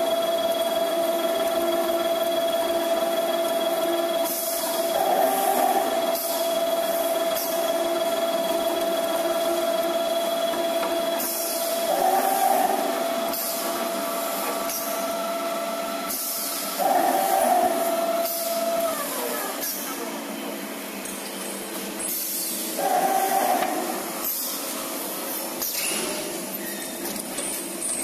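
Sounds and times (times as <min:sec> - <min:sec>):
cold saw motor whine: 0:00.0 - 0:19.5.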